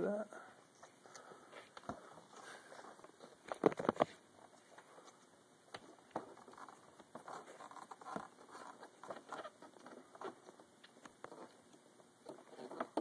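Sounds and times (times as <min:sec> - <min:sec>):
plastic connector rustling: 0:01.8 - 0:05.2.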